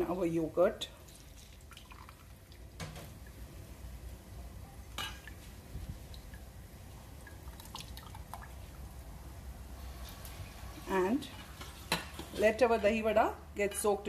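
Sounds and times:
water dripping into steel bowl: 0:01.1 - 0:03.4, 0:07.2 - 0:08.8.

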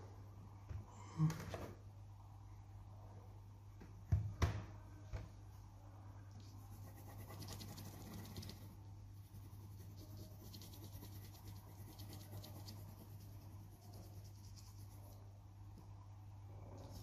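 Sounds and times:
steady low hum: 0:00.0 - 0:17.0
pencil scratching on paper: 0:06.5 - 0:15.2.

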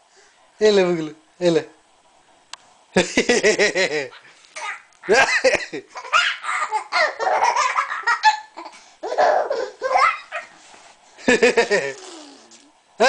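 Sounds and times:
baby laughing: 0:04.0 - 0:10.6, 0:11.3 - 0:12.7
baby cooing: 0:11.8 - 0:12.8.

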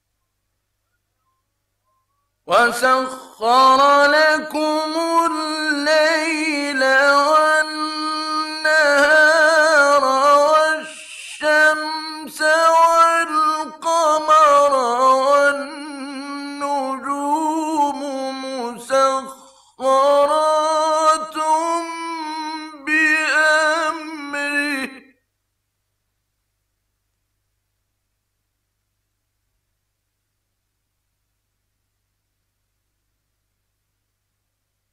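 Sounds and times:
man chanting recitation: 0:02.5 - 0:25.1
man breathing: 0:10.8 - 0:11.4, 0:19.3 - 0:19.8.

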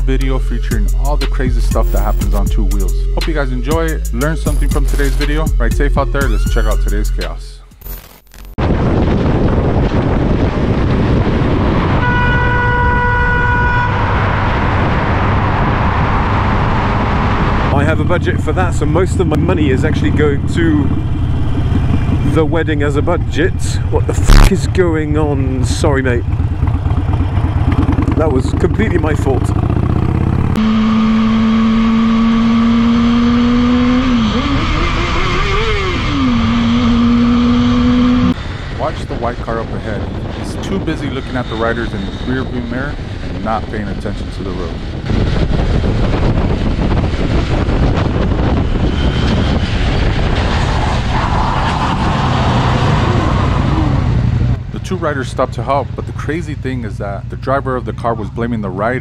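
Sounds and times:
roar of wind and engine: 0:00.0 - 0:07.7, 0:08.6 - 0:59.0
vehicle horn: 0:12.0 - 0:14.4.

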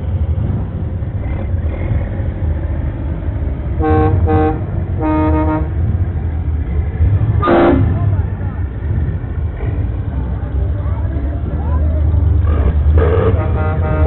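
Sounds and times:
passing vehicle engines rumbling: 0:00.0 - 0:14.0
vehicle horns honking: 0:03.8 - 0:05.8, 0:07.4 - 0:08.0, 0:13.0 - 0:14.0.

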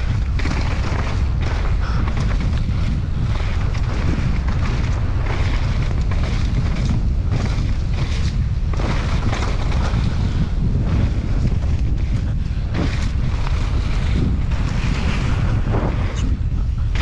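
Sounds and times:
bike knocks and rattles: 0:00.0 - 0:17.0
wind buffeting microphone: 0:00.0 - 0:17.0.

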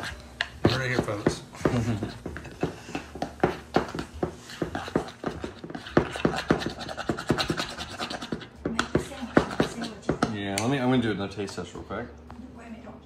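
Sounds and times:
spoon scraping ceramic bowl: 0:00.0 - 0:01.3, 0:02.0 - 0:10.1.

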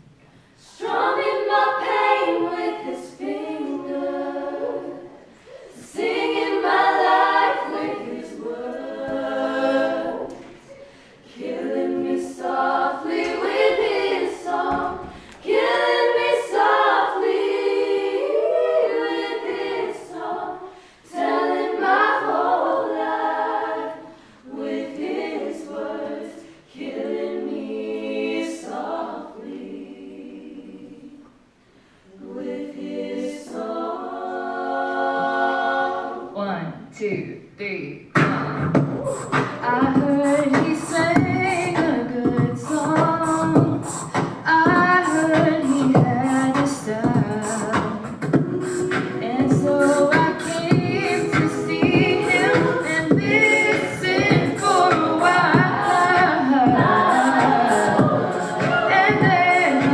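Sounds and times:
a cappella group singing: 0:00.0 - 0:36.5, 0:38.1 - 0:59.9
singers breathing: 0:05.2 - 0:05.9, 0:10.6 - 0:11.3, 0:15.0 - 0:15.4, 0:20.6 - 0:21.2, 0:24.0 - 0:24.5, 0:31.6 - 0:32.2.

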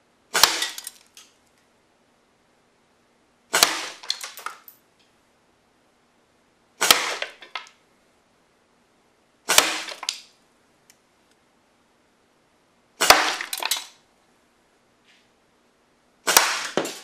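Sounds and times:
air rifle shots: 0:00.3 - 0:00.9, 0:03.5 - 0:04.6, 0:06.8 - 0:07.5, 0:09.5 - 0:10.1, 0:13.0 - 0:14.0, 0:16.2 - 0:17.0
pellet cracking into plastic case: 0:00.4 - 0:01.3, 0:03.6 - 0:04.7, 0:13.0 - 0:14.0.

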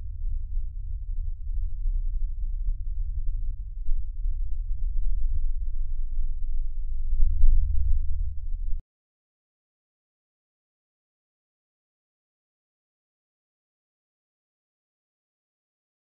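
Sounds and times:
deep steady drone: 0:00.0 - 0:08.8.

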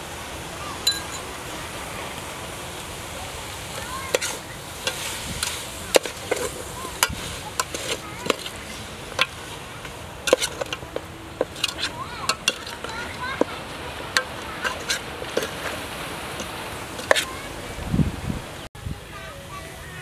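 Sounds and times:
steady hiss: 0:00.0 - 0:20.0
metal ladle clinking on pot: 0:00.9 - 0:01.2, 0:04.1 - 0:17.3.

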